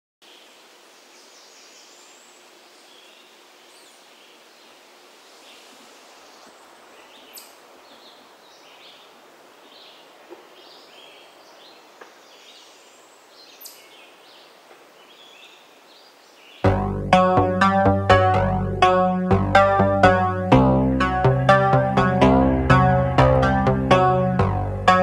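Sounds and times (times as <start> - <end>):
steady hiss: 0.2 - 16.7
birds chirping: 5.4 - 20.4.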